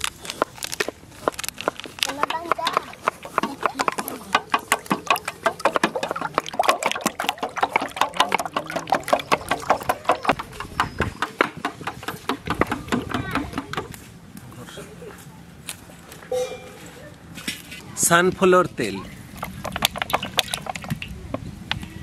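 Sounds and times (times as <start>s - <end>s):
whisk beating eggs in steel bowl: 2.1s - 13.8s.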